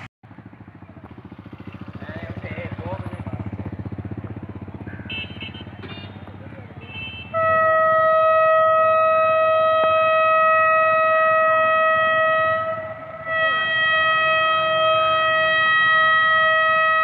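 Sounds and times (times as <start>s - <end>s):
locomotive horn blasts: 4.9s - 17.0s.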